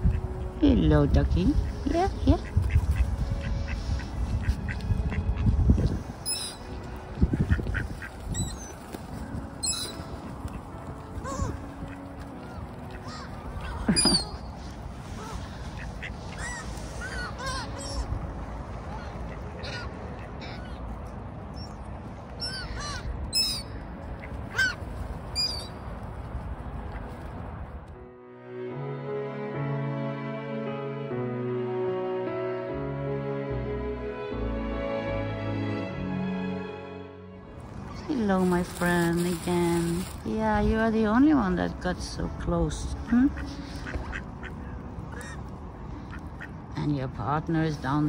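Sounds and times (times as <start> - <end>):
ducks quacking: 1.5 - 8.8, 9.6 - 14.5, 15.1 - 18.2, 18.8 - 20.9, 42.9 - 46.6
high-pitched bird calls: 6.2 - 6.8, 9.6 - 10.1, 22.4 - 23.8
birds calling: 6.2 - 14.6, 15.2 - 18.2, 21.5 - 24.8, 25.4 - 25.8, 43.0 - 46.6.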